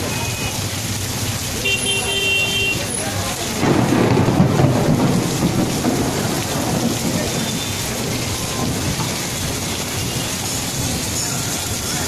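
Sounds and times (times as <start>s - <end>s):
heavy rain pouring: 0.0s - 12.0s
thunder rumble: 3.4s - 11.8s.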